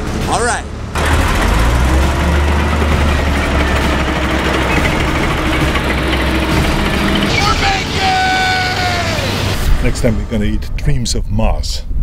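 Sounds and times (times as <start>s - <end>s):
tank engine low rumble: 0.8s - 9.9s.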